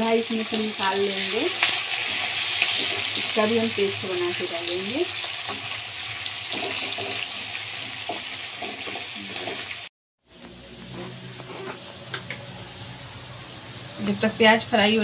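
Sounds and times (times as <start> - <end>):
onions sizzling in oil: 0.0 - 9.9
wooden spatula scraping and knocking: 10.8 - 12.4.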